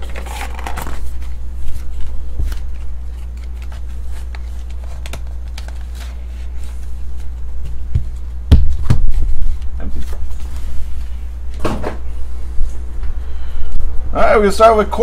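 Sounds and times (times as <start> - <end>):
cardboard rustling: 0.0 - 11.0
steady low hum: 0.0 - 15.0.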